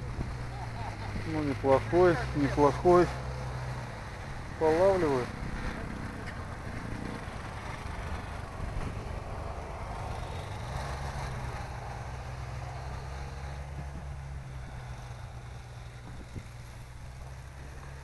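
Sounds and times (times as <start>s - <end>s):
outdoor noise: 0.0s - 18.0s
vehicle engine humming: 0.0s - 18.0s.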